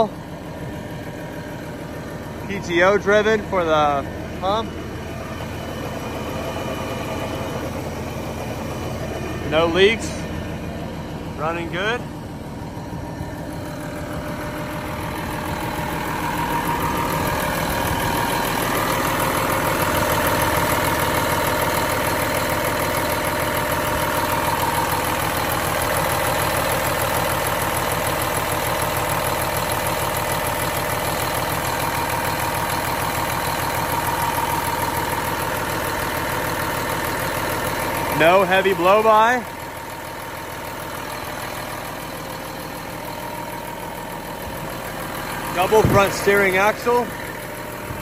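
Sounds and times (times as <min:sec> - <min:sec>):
diesel engine idling: 0:00.0 - 0:48.0.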